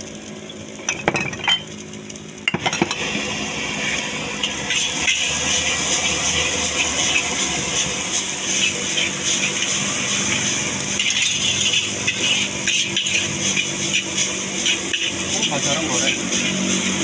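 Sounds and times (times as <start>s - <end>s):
rice frying in a wok: 0.0s - 17.0s.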